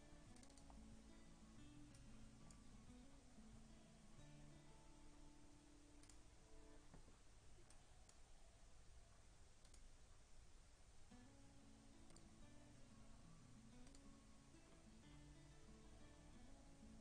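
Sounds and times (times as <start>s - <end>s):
faint computer mouse clicks: 0.3s - 0.8s, 6.0s - 6.2s, 9.6s - 9.9s, 12.0s - 12.4s, 13.8s - 14.1s.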